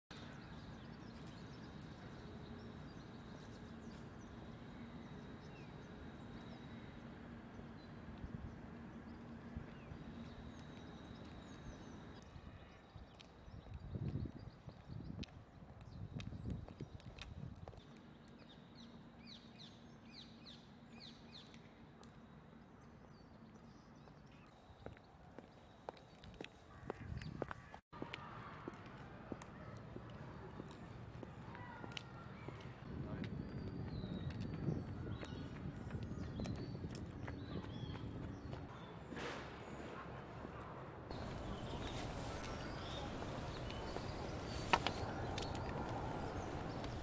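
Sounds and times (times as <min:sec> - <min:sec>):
footsteps on paved path: 0:07.6 - 0:18.6, 0:23.5 - 0:47.0
footsteps on gravel: 0:41.1 - 0:47.0.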